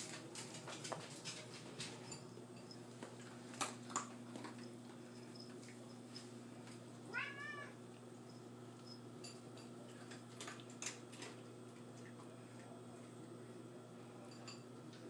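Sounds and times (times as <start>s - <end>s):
low steady hum: 0.0s - 15.0s
kitten meowing: 7.1s - 7.8s.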